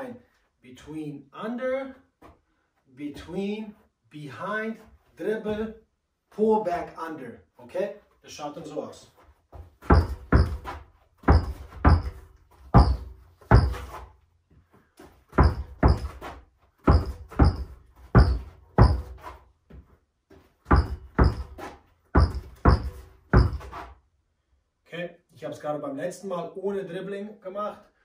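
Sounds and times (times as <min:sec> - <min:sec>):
basketball thudding on carpet: 0:09.5 - 0:14.0, 0:15.3 - 0:23.8.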